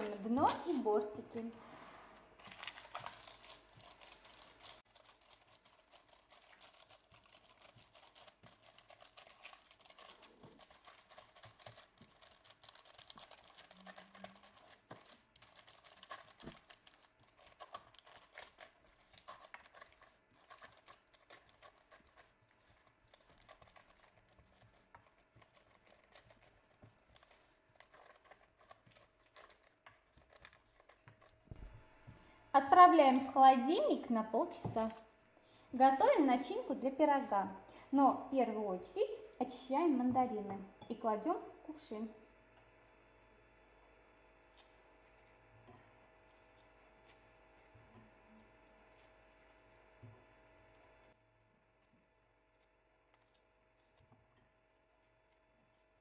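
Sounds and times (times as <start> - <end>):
parchment paper crinkling: 2.4 - 31.7.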